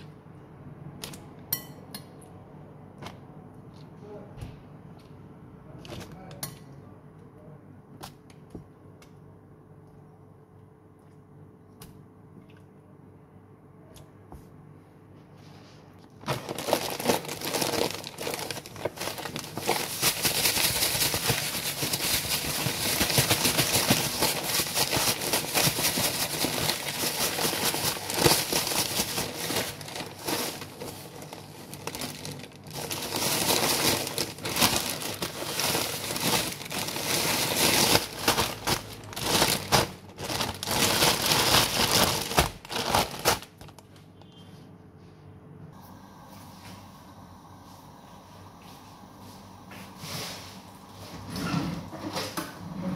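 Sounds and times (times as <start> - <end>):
plastic bag crinkling: 16.1 - 44.0.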